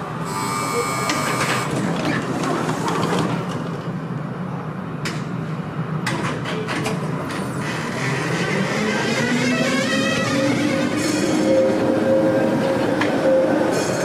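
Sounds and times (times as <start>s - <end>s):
tram humming: 0.0s - 14.0s
tram doors closing clunks: 0.3s - 14.0s.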